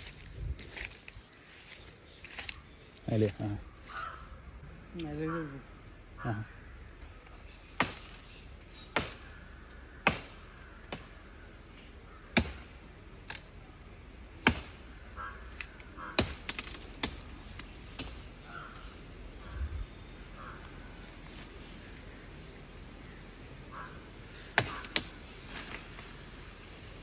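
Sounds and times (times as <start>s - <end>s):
blade chopping plant stems: 8.9s - 9.4s, 10.0s - 11.2s, 12.3s - 13.5s, 14.4s - 14.9s, 15.5s - 18.3s, 24.5s - 26.1s.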